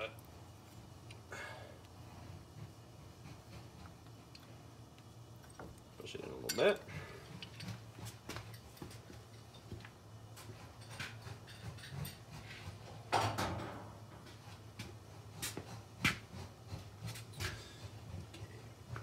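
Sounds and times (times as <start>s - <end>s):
metal tools clicking and knocking: 6.4s - 9.8s.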